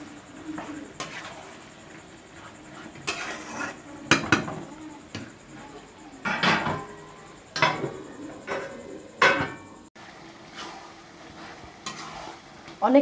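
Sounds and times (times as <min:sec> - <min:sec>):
vegetables being stirred: 0:00.0 - 0:05.6, 0:10.0 - 0:13.0
spatula scraping a metal pan: 0:00.6 - 0:04.6, 0:10.4 - 0:12.7.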